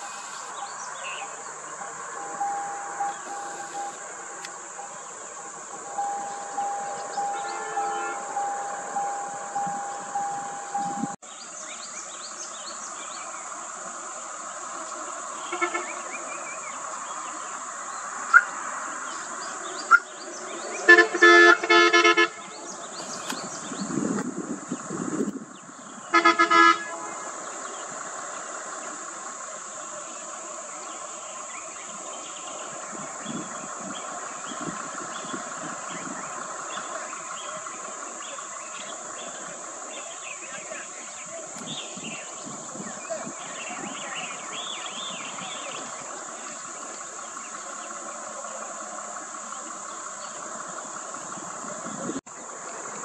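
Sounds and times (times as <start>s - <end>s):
high insect drone: 0.0s - 53.0s
vehicle horn short toots: 2.2s - 4.0s, 6.0s - 11.2s, 20.9s - 22.6s, 26.1s - 27.3s.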